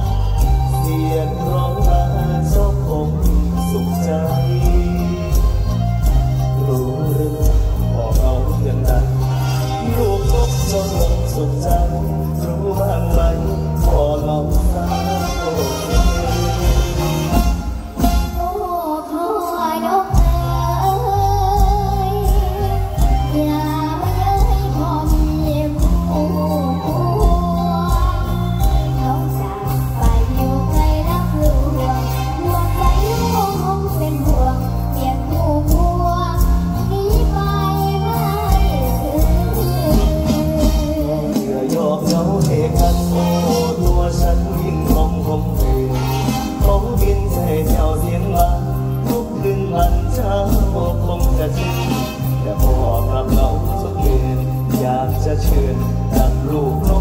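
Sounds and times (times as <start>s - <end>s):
sustained bass: 0.0s - 18.5s
steady drum beat: 0.0s - 18.6s, 24.4s - 57.0s
live band: 0.0s - 57.0s
man singing: 0.0s - 57.0s
girl singing through pa: 18.4s - 41.3s.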